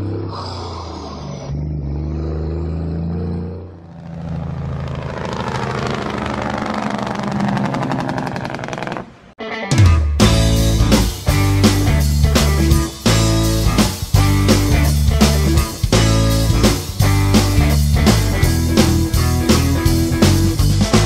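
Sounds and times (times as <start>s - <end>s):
heavy truck engine revving: 0.0s - 9.2s.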